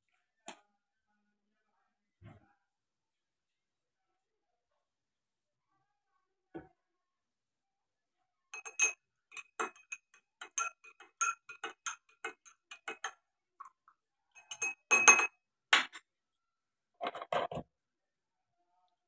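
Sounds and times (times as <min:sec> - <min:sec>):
spoon clinking in glass: 0:08.6 - 0:13.2, 0:14.4 - 0:15.4.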